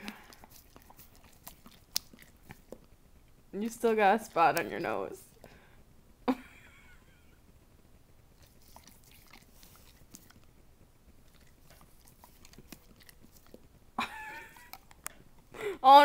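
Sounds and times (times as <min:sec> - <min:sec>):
dog licking wet tongue smacks: 0:00.0 - 0:02.9, 0:08.4 - 0:10.5, 0:11.2 - 0:13.7, 0:14.3 - 0:15.5.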